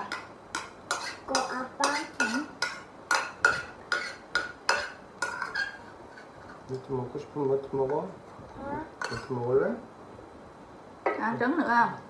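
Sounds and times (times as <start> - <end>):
spoons clinking on ceramic bowls: 0.0 - 5.8, 9.0 - 9.4.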